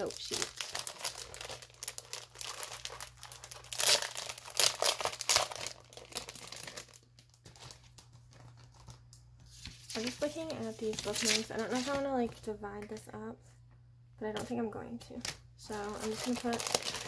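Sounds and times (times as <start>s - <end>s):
paper sheets rustling: 7.4s - 12.3s.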